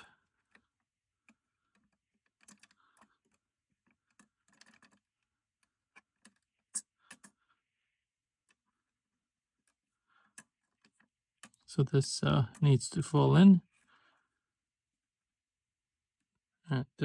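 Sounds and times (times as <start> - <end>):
small metal clicks and taps: 0.4 - 7.4.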